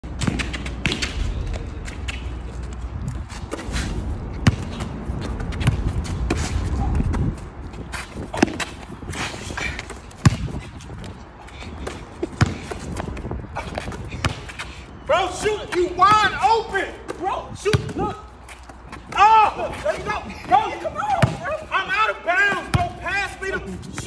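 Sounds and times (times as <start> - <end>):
basketball bouncing: 0.2 - 2.3, 4.3 - 7.3, 10.2 - 10.6, 11.8 - 14.6, 17.7 - 18.1, 21.2 - 21.4
low rumble: 1.0 - 7.6.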